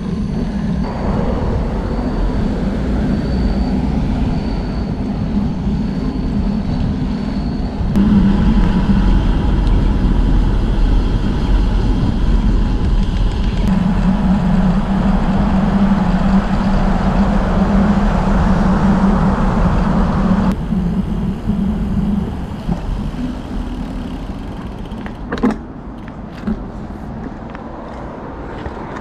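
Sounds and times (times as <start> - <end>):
wind and tyre noise: 0.0 - 29.0
bicycle clicks and knocks: 22.6 - 26.7.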